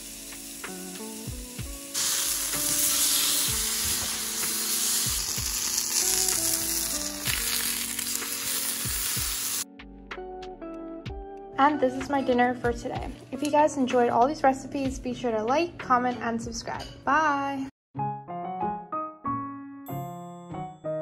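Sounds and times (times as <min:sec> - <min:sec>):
food sizzling on stovetop: 0:00.0 - 0:09.7
soft background music: 0:00.0 - 0:21.0.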